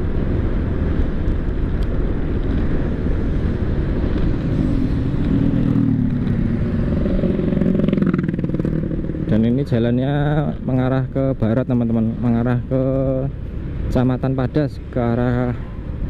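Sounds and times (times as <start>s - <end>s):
wind and traffic rumble: 0.0s - 16.0s
vehicle engine tone: 4.3s - 16.0s.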